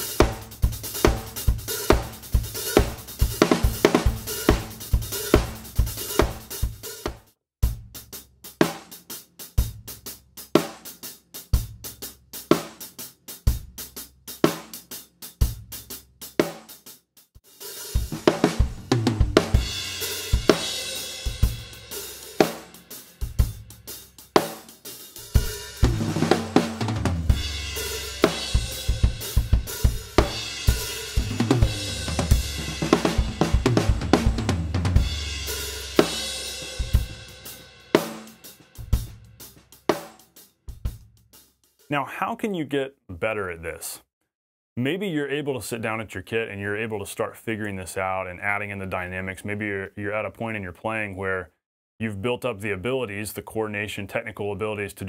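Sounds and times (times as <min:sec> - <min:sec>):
drum kit playing: 0:00.0 - 0:42.5.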